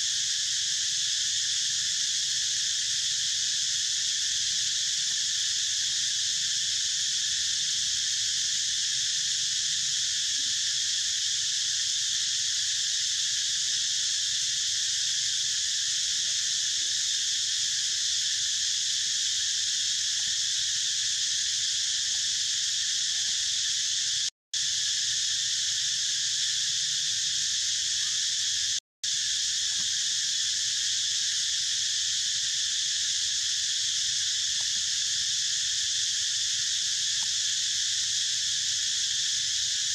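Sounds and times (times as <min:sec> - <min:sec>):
insect chorus chirring: 0:00.0 - 0:39.9.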